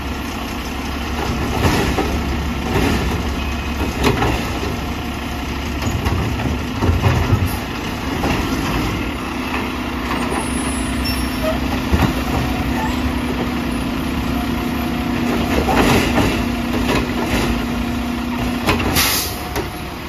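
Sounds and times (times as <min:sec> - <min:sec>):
garbage truck engine running: 0:00.0 - 0:20.0
trash cart knocking and clattering: 0:01.1 - 0:05.0, 0:05.7 - 0:10.4, 0:11.7 - 0:13.6, 0:15.1 - 0:19.8
automated side arm dumping cart: 0:01.2 - 0:20.0.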